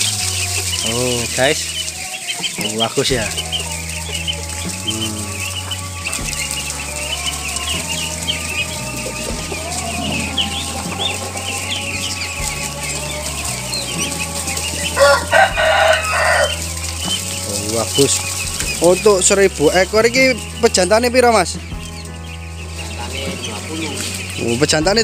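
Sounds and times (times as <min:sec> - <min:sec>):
ducklings peeping and chattering: 0:00.0 - 0:25.0
loud rooster-like call: 0:15.0 - 0:16.6.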